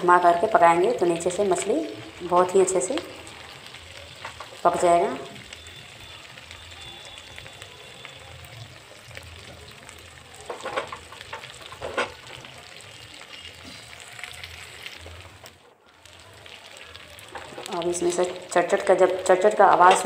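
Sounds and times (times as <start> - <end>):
fish frying in hot oil: 0.0 - 20.0
pan scraping on stove: 10.5 - 12.4.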